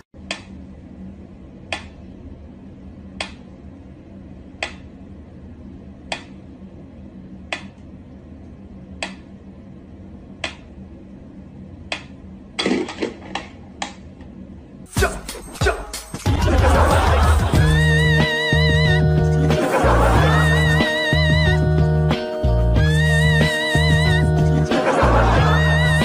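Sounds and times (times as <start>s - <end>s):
low hum: 16.2s - 26.0s.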